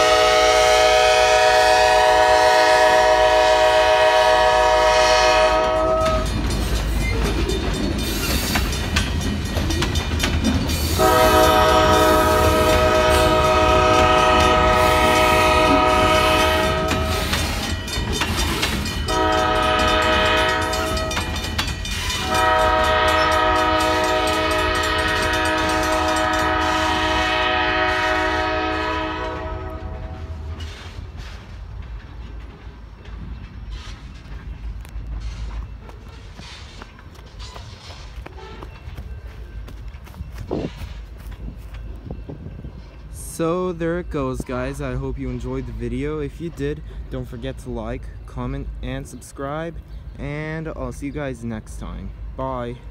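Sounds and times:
locomotive horn blasts: 0:00.0 - 0:06.3, 0:11.0 - 0:17.5, 0:19.1 - 0:21.4, 0:22.2 - 0:30.6, 0:38.3 - 0:38.7
train wheels rumbling and clacking: 0:00.0 - 0:52.9
crossing bells ringing: 0:02.8 - 0:30.9, 0:32.0 - 0:50.8.

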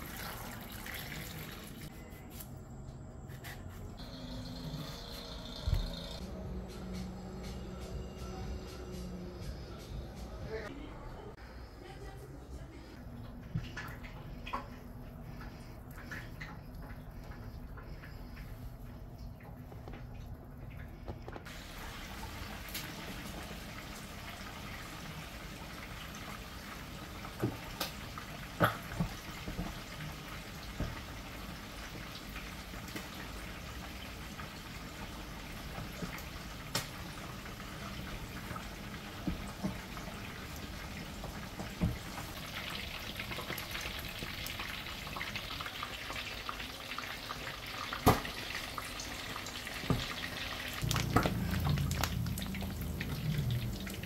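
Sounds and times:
water splashes and drips: 0:00.0 - 0:01.9, 0:13.2 - 0:54.0
steady low hum: 0:50.8 - 0:54.0.

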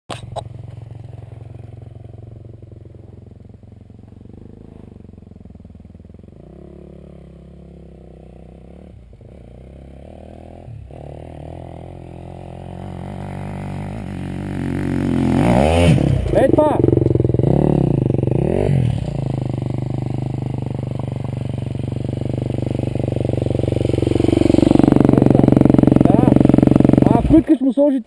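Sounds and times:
motorcycle engine climbing hill: 0:00.1 - 0:28.0
dirt bike engine idling: 0:00.2 - 0:28.0.

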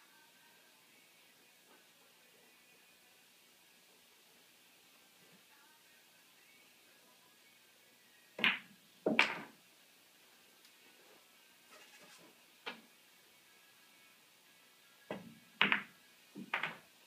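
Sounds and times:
cue tip clicking ball: 0:08.4 - 0:09.5, 0:15.1 - 0:16.8
billiard balls colliding: 0:08.4 - 0:09.6, 0:15.1 - 0:16.9.

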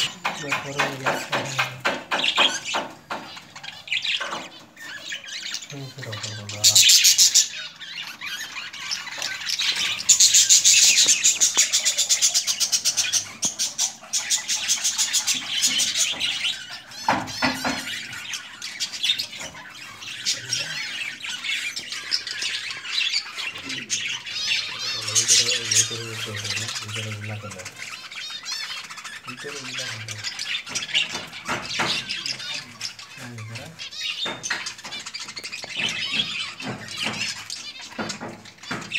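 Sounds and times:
budgerigars chattering and chirping: 0:00.0 - 0:38.9.

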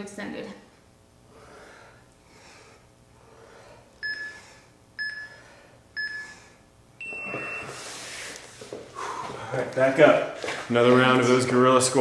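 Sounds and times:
long high-pitched beep: 0:04.0 - 0:04.4, 0:05.0 - 0:06.4, 0:07.0 - 0:07.8
short timer beeps: 0:04.0 - 0:04.4, 0:05.0 - 0:05.4, 0:06.0 - 0:06.3, 0:07.0 - 0:07.8.

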